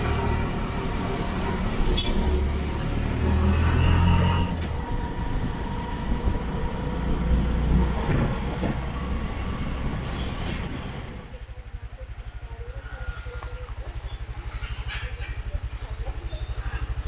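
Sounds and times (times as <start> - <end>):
auto-rickshaw engine: 0.0 - 17.0
road rumble: 0.0 - 17.0.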